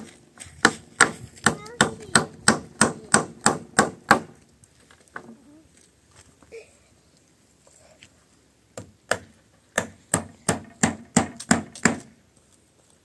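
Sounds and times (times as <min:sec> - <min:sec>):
hammer striking wooden planks: 0:00.6 - 0:04.4, 0:08.8 - 0:12.1.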